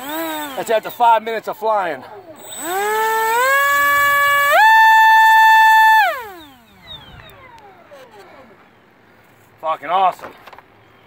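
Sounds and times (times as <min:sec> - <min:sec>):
electric ducted fan whining: 0:00.0 - 0:01.3, 0:02.4 - 0:09.0.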